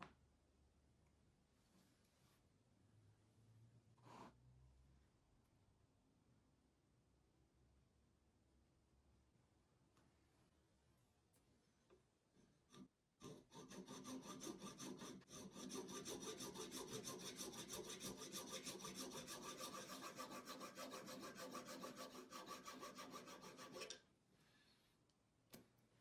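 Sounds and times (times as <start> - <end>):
hand saw cutting plastic: 13.2 - 24.0.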